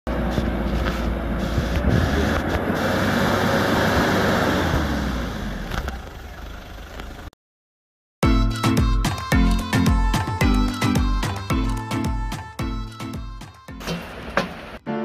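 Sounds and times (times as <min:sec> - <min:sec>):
suv engine working hard: 0:00.1 - 0:07.3.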